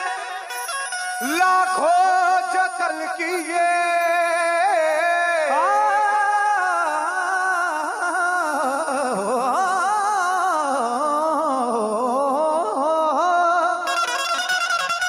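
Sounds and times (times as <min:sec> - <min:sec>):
harmonium holding notes: 0:00.0 - 0:05.1, 0:13.9 - 0:15.0
man singing melismatic passage: 0:00.0 - 0:14.2.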